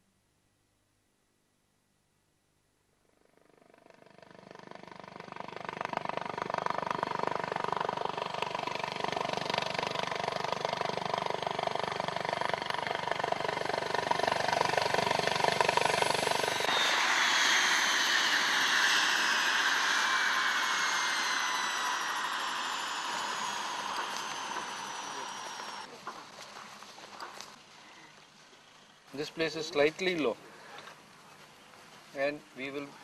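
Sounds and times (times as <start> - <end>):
helicopter rotor beating: 3.3 - 25.9
turbine rushing with whine: 4.3 - 25.9.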